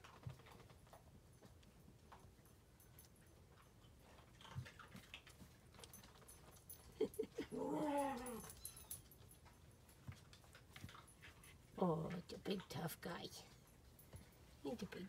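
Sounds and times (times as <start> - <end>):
puppy whimpering: 7.0 - 9.0.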